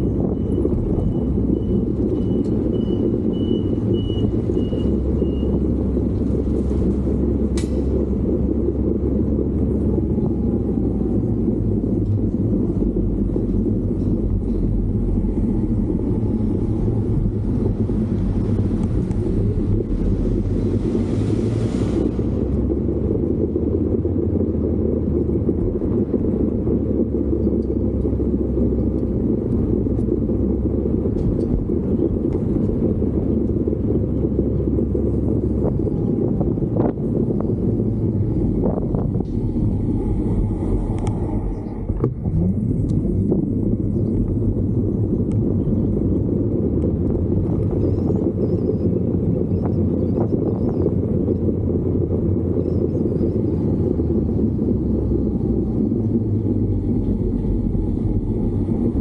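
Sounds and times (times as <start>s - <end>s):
vehicle engine and road rumble: 0.0s - 59.0s
sharp click: 7.5s - 7.8s.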